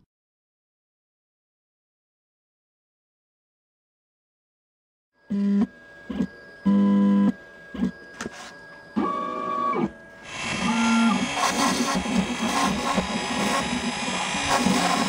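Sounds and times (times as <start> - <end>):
stepper motors whining: 5.4 - 15.0
router motor running: 9.0 - 15.0.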